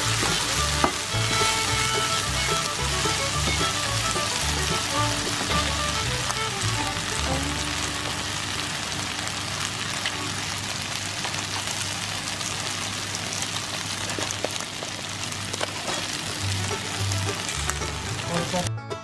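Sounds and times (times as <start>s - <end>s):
corn sizzling in butter: 0.0s - 18.7s
small pops and crackles: 10.0s - 16.8s.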